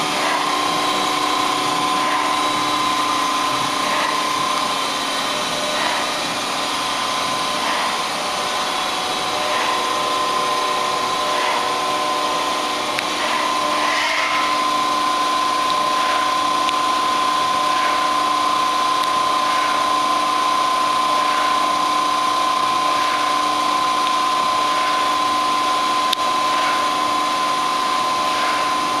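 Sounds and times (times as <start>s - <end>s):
lathe mechanical whine: 0.0s - 29.0s.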